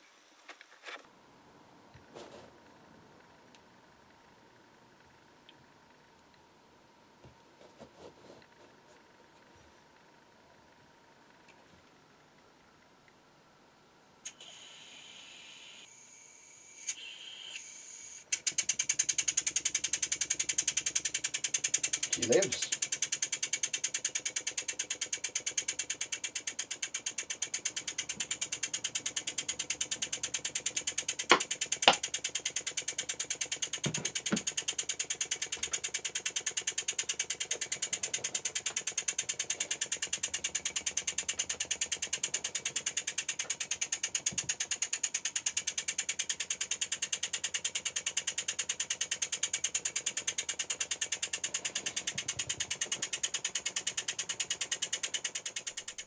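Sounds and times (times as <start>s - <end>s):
model steam engine ticking: 18.3s - 56.0s
sharp clicks: 18.3s - 56.0s.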